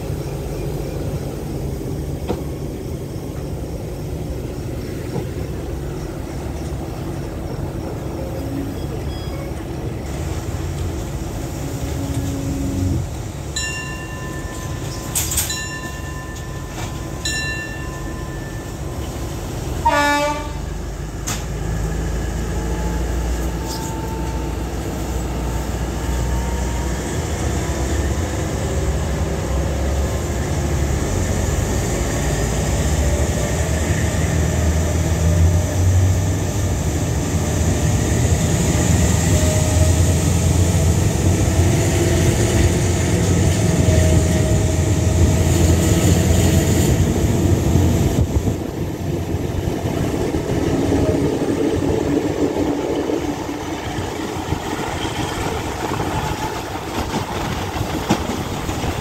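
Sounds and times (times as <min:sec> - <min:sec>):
train rumbling: 0:00.0 - 0:59.0
train horn blast: 0:11.6 - 0:13.1, 0:19.8 - 0:20.9.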